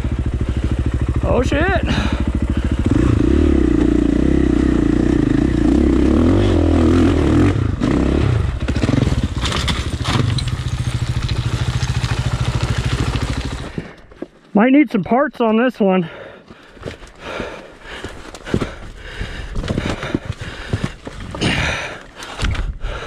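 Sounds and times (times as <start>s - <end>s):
dirt bike engine revving: 0.0s - 13.9s
bike knocking on rock: 9.0s - 14.3s.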